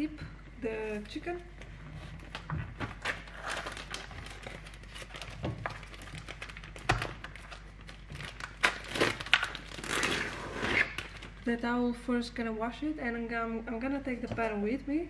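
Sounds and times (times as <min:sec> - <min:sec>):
plastic film crinkling: 0:02.2 - 0:11.5.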